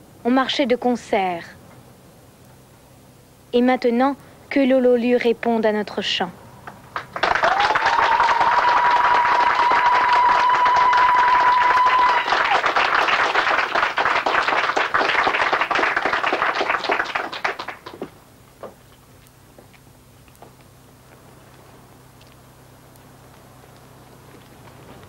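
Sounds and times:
high held cry: 7.2 - 13.4.

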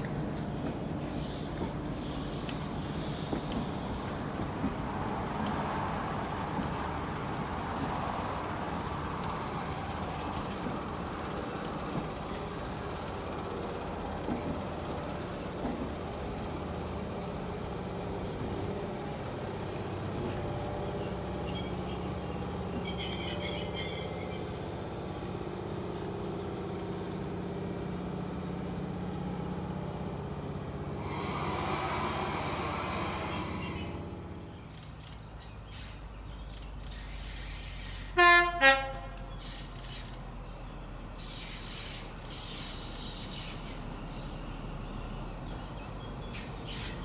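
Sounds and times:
train running slowly: 0.0 - 47.0
high squeal: 18.6 - 26.0, 31.0 - 34.5.

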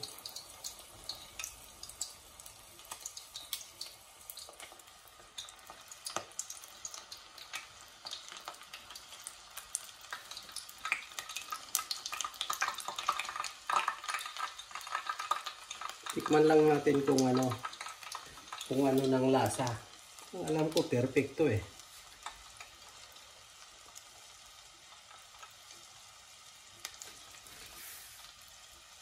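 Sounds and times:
metal tongs in oil: 0.0 - 2.2
meat sizzling in hot oil: 0.0 - 29.0.

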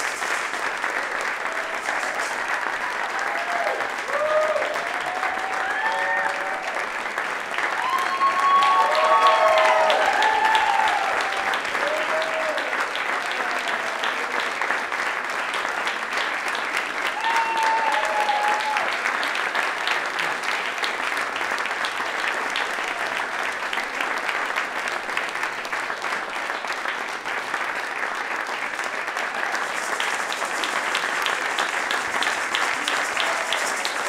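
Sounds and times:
crowd applause: 0.0 - 34.0.

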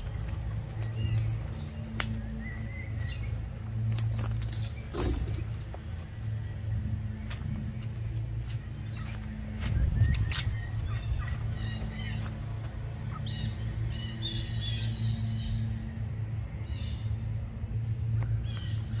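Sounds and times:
birds chirping: 0.0 - 19.0
steady low hum: 0.0 - 19.0.

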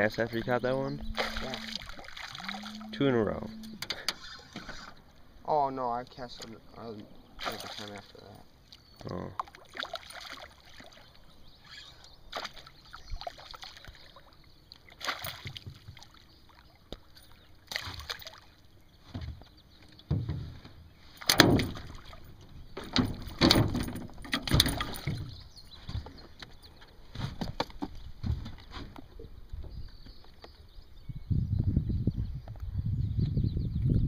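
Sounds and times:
fish thrashing and splashing: 1.1 - 2.9, 7.4 - 8.1, 9.4 - 11.2, 12.3 - 16.6, 17.7 - 18.5.

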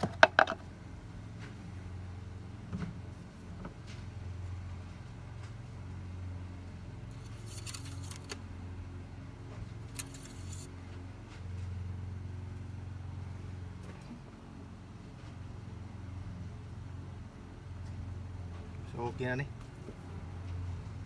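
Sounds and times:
crisp handling noise: 7.1 - 8.4.

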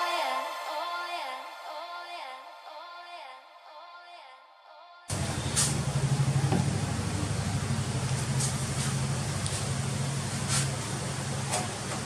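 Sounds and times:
road noise hiss: 5.1 - 12.0
vehicle engine hum: 5.1 - 12.0.

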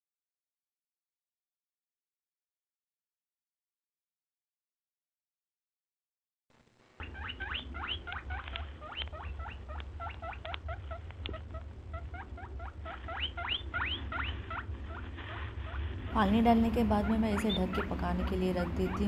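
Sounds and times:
low steady hum: 6.5 - 19.0.

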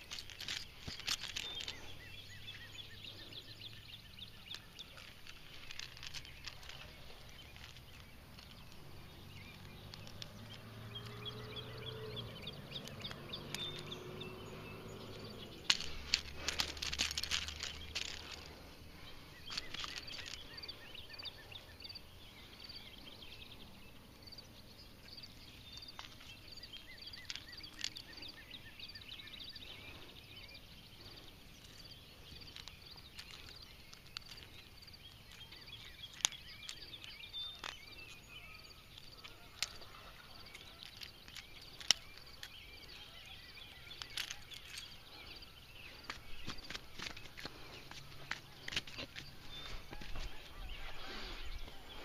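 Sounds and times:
faint high-pitched chirping: 0.0 - 52.0.

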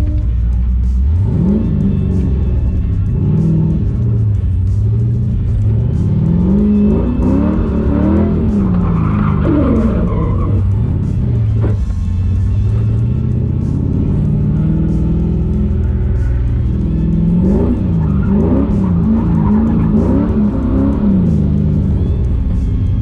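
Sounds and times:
car engine revving: 0.0 - 23.0
tyre squeal: 6.6 - 11.1.

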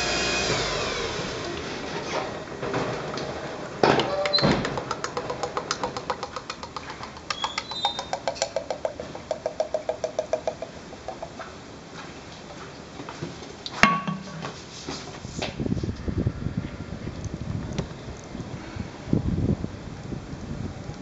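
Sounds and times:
oil glugging into a jug: 4.8 - 11.4.

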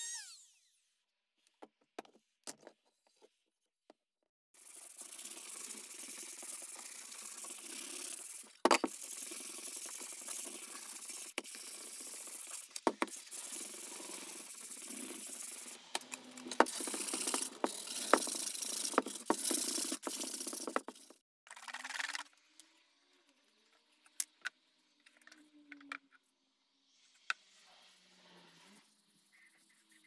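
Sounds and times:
sandpaper rubbing on wood: 4.6 - 21.1.

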